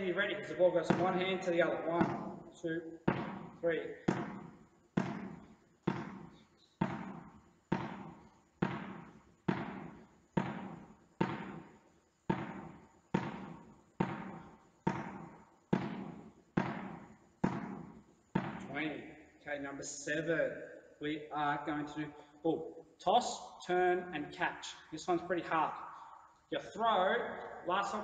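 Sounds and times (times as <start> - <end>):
tennis ball bouncing indoors: 0.0 - 19.4, 25.7 - 26.5.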